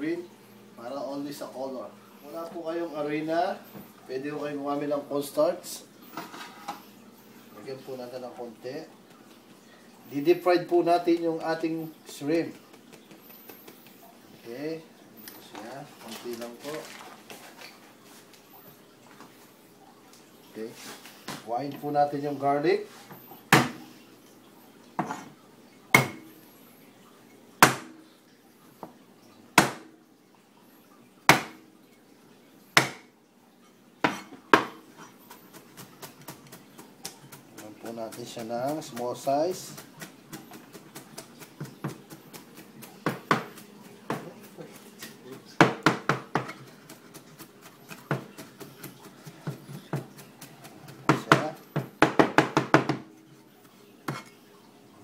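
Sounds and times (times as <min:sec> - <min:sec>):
cleaver chopping on cutting board: 0:23.5 - 0:23.8, 0:26.0 - 0:26.2, 0:29.6 - 0:29.9, 0:31.3 - 0:31.6, 0:32.8 - 0:33.0, 0:45.0 - 0:47.2
knife chopping on cutting board: 0:23.5 - 0:23.8, 0:26.0 - 0:26.2, 0:32.8 - 0:33.0, 0:39.7 - 0:53.1.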